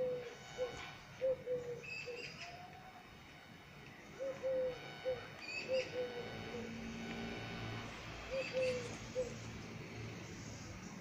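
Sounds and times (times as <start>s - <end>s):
dove cooing: 0.0s - 2.8s, 4.2s - 7.4s, 8.2s - 9.6s
small bird chirping: 3.9s - 6.7s, 8.3s - 9.6s.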